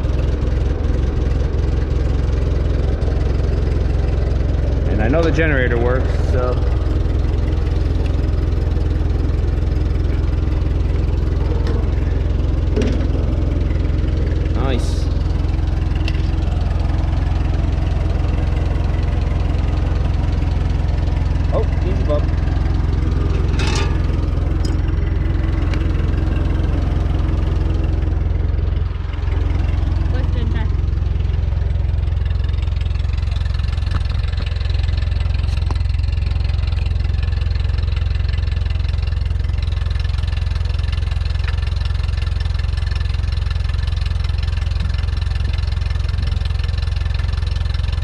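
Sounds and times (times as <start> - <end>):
tractor engine idling: 0.0 - 48.0.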